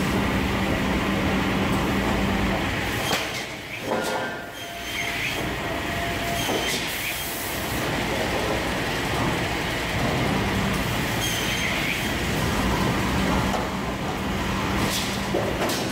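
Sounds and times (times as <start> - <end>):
steady machine hum: 0.0 - 3.0.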